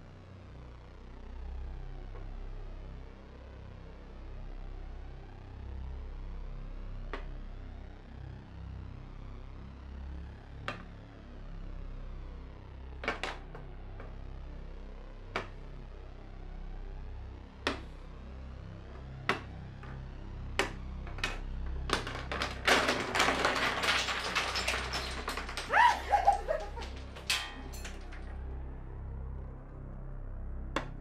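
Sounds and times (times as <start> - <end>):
chess pieces clicking on board: 20.6 - 27.5
chess pieces clattering: 21.1 - 28.3.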